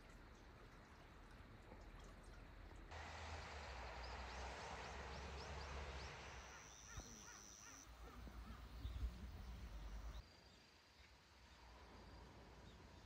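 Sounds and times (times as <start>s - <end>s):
steady rushing hiss: 2.9s - 10.2s.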